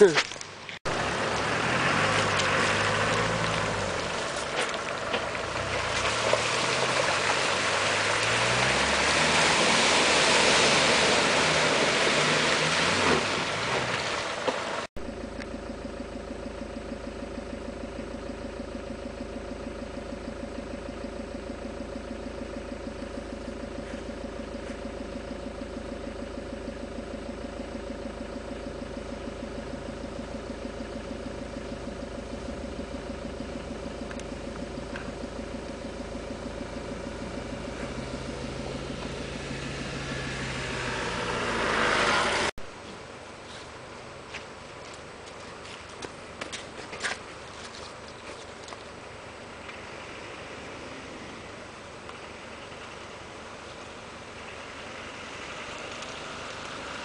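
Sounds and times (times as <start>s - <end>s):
tyres rushing in mud: 0.0s - 14.9s, 33.5s - 57.0s
diesel engine revving: 0.0s - 57.0s
steady engine hum: 0.0s - 57.0s.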